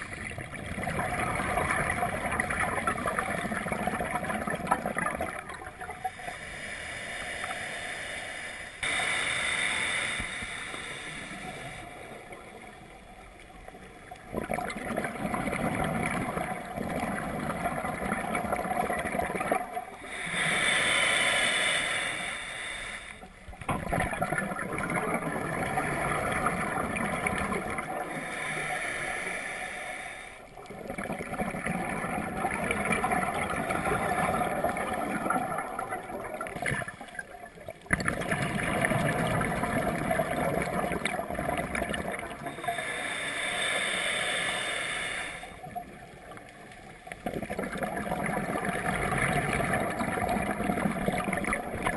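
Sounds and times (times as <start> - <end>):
regulator hissing inhalation: 6.0 - 12.2, 20.0 - 23.3, 28.0 - 30.5, 42.4 - 45.8
bubbling exhalation: 14.3 - 19.8, 23.7 - 28.1, 37.9 - 42.6, 47.2 - 51.9.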